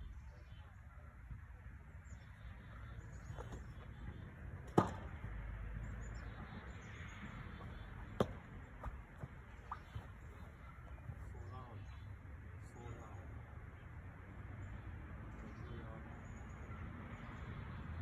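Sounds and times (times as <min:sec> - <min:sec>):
low rumble of wind: 0:00.0 - 0:18.0
baseball popping into glove: 0:04.6 - 0:05.4, 0:07.6 - 0:11.2.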